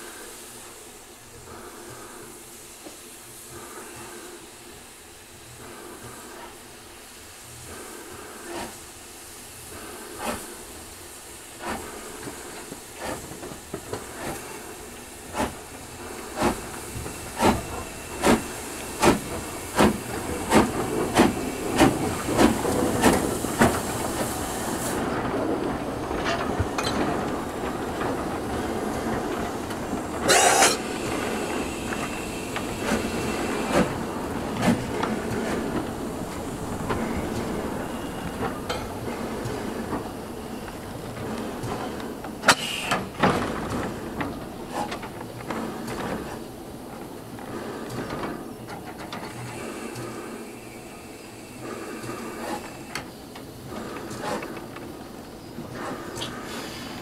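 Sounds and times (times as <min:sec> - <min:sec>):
loud burst of steam hiss: 0:00.0 - 0:25.2, 0:28.6 - 0:40.6, 0:42.4 - 0:43.2, 0:49.3 - 0:54.6, 0:55.7 - 0:57.0
steady steam hiss: 0:00.0 - 0:57.0
steam locomotive exhaust beats: 0:00.0 - 0:57.0.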